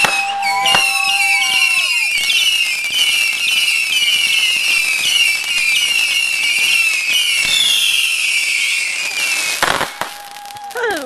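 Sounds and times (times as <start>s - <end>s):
firework whistling: 0.0s - 11.0s.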